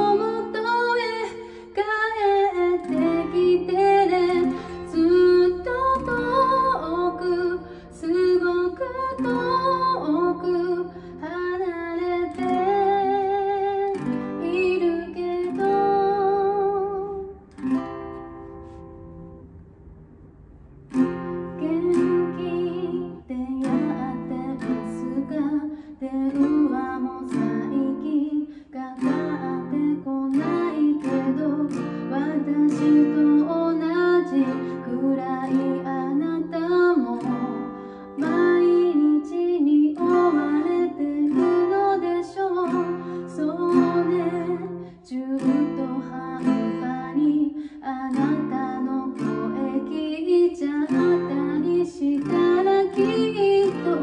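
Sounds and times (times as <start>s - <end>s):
woman singing: 0.0s - 17.5s, 21.2s - 54.0s
acoustic guitar strumming: 0.0s - 54.0s.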